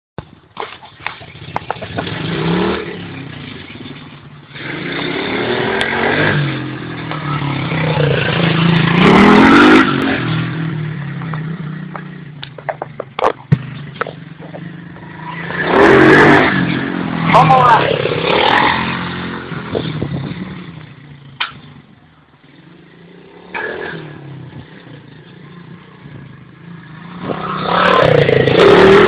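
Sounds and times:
small motorbike engine revving: 26.0 - 29.0.

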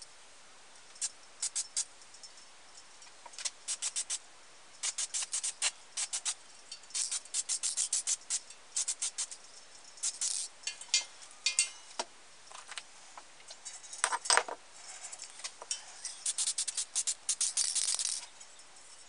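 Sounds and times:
light metallic clinks: 0.8 - 3.6, 5.8 - 12.6, 13.4 - 19.0
spray-paint can hissing: 1.0 - 1.9, 3.7 - 4.2, 4.8 - 9.4, 10.0 - 10.5, 16.2 - 18.2.

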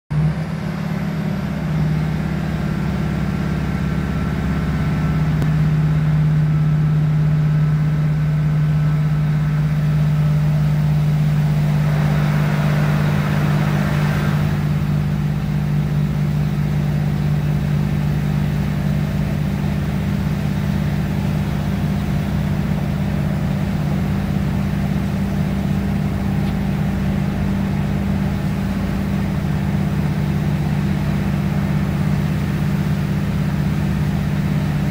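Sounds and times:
train diesel engine drone: 0.1 - 34.9
wheels running on track: 7.7 - 34.9.

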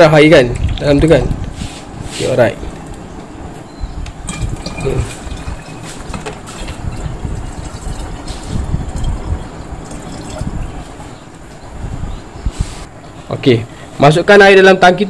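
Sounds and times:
water pouring from a bottle: 4.3 - 11.1.

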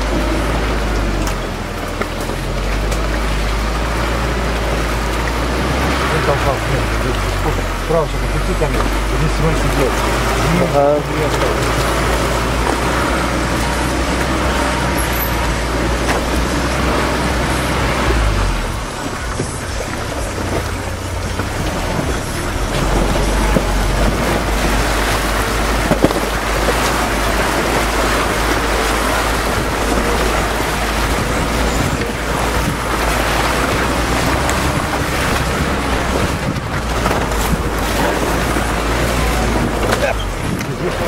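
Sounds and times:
low engine rumble: 0.0 - 41.0
water and mud splashing: 0.0 - 41.0.

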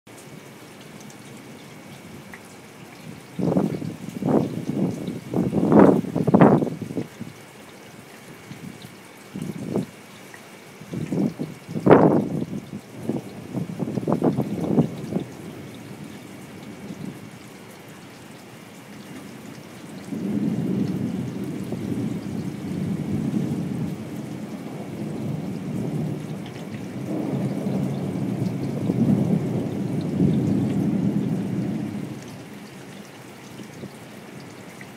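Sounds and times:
steady rain: 0.1 - 34.9
thunder rumbling: 3.4 - 7.0, 11.0 - 17.4, 20.0 - 32.5.

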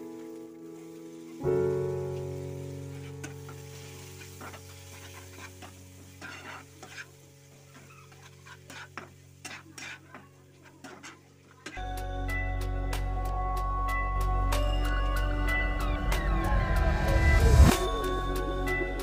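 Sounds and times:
music chord: 0.0 - 4.4, 11.8 - 19.0
spatula scraping pan: 2.9 - 11.8.

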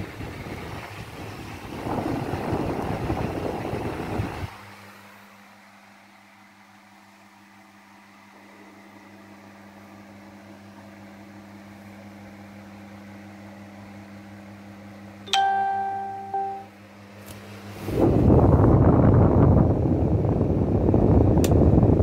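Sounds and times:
wind buffeting from fan blades: 0.0 - 5.0, 17.5 - 22.0.

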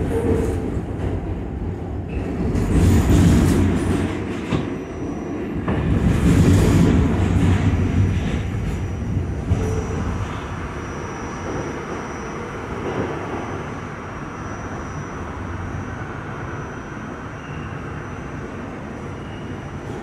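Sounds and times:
subway train wheels rumbling: 0.0 - 20.0.

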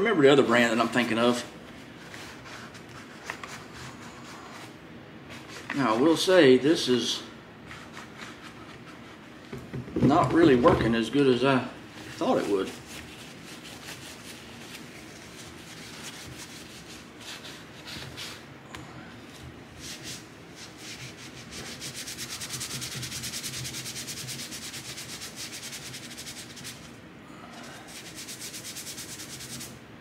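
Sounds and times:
wipe scrubbing a tool: 12.0 - 18.4, 19.2 - 27.0, 27.7 - 29.8.

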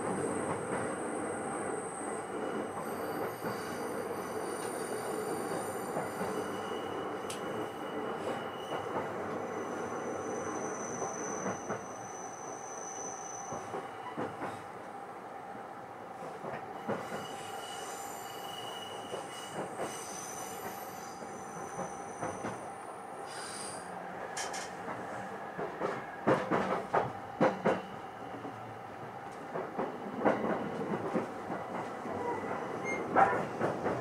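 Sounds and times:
train wheels rumbling on rail: 0.0 - 14.8, 16.1 - 34.0.

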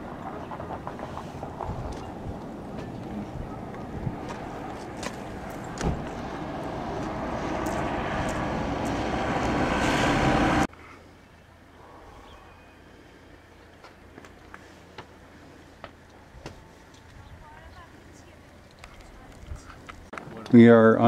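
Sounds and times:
motor vehicle approaching: 0.0 - 10.7
quiet outdoor ambience: 0.0 - 21.0
thump: 5.8 - 6.1.

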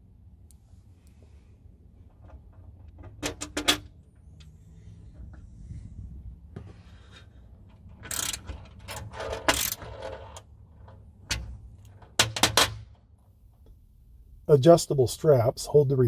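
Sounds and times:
metal hardware rattling and clinking: 2.1 - 4.5, 7.6 - 12.9.

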